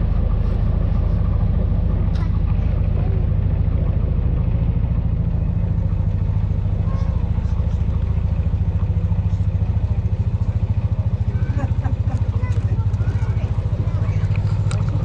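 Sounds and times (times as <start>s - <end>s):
boat engine chugging: 0.0s - 15.0s.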